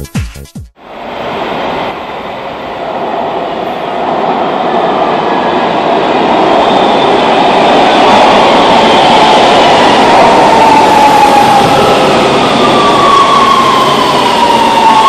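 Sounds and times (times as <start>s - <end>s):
subway train rumble: 0.8s - 15.0s.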